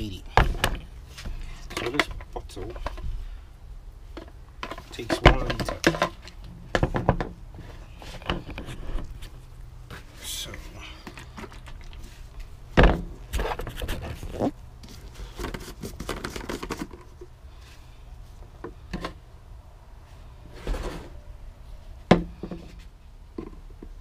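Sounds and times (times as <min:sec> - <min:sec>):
plastic containers knocking and rattling: 0:00.3 - 0:00.9, 0:04.2 - 0:07.4, 0:15.3 - 0:17.3.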